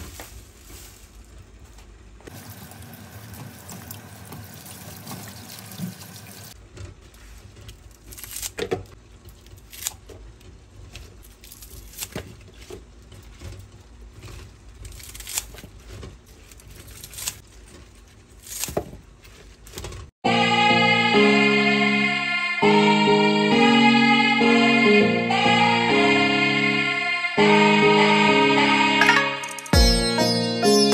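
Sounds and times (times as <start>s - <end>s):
water washing in sink: 2.2s - 7.7s
splashes and drips: 2.3s - 6.6s.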